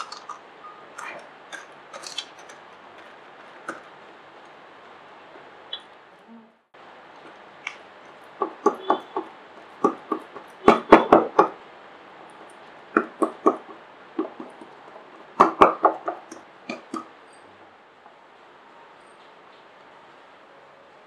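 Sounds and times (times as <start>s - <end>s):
hands patting dough: 7.2s - 11.6s, 12.9s - 17.1s.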